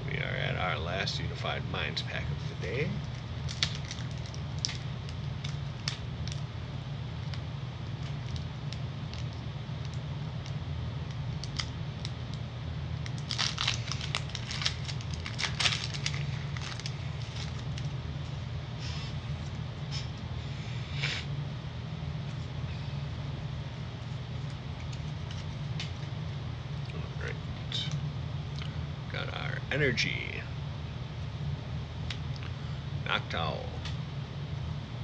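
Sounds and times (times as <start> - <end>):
steady low hum: 0.0 - 35.0
foil wrapper crinkling: 3.0 - 6.4, 11.4 - 12.2, 13.0 - 18.0.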